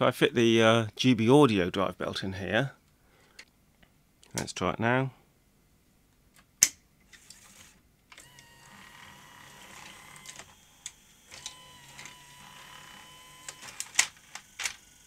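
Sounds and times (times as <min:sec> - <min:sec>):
loading motor whining: 0:07.6 - 0:15.0
mechanical clicks: 0:09.6 - 0:15.0.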